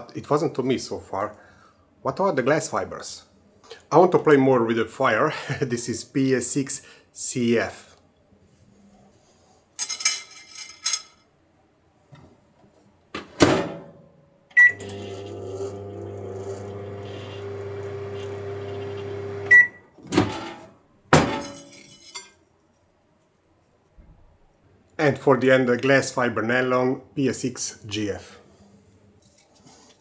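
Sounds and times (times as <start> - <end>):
microwave beep: 14.5 - 15.5, 17.0 - 19.8
microwave oven humming: 14.6 - 19.8.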